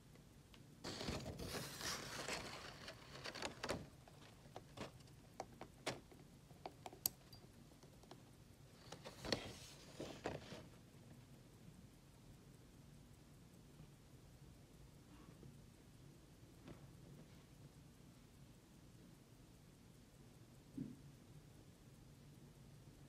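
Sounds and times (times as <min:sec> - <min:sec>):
fingers rustling: 0:00.9 - 0:07.4.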